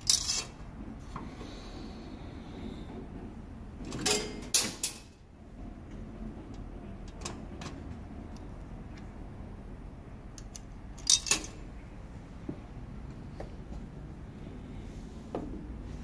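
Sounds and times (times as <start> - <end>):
metal mechanism clicks: 10.4 - 11.6.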